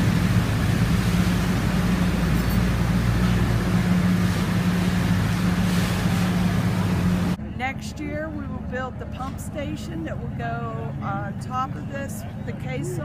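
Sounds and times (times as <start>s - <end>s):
drilling machinery droning hum: 0.0s - 7.6s.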